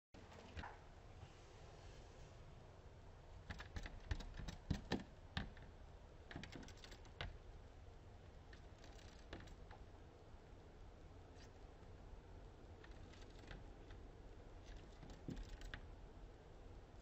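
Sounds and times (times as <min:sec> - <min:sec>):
birds tapping on window glass: 0:03.4 - 0:07.4, 0:14.6 - 0:15.9.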